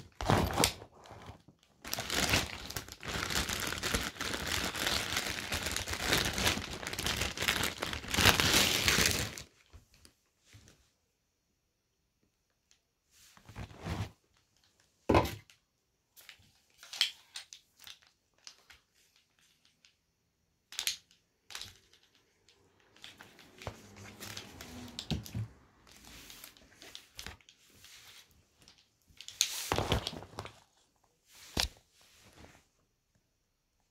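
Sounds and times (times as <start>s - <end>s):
rustling and scraping: 13.1s - 14.3s, 23.0s - 32.8s.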